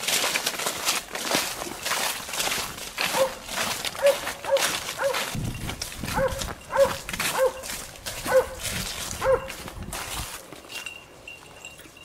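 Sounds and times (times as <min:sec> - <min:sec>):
brush and branches rustling: 0:00.0 - 0:11.6
dog barking: 0:03.1 - 0:03.4, 0:04.0 - 0:05.3, 0:06.1 - 0:07.6, 0:08.2 - 0:08.6, 0:09.2 - 0:09.6.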